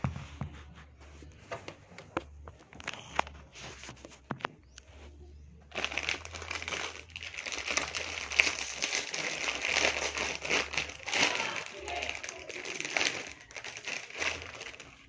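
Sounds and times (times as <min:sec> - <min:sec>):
plastic packet crinkling: 0:05.7 - 0:15.0.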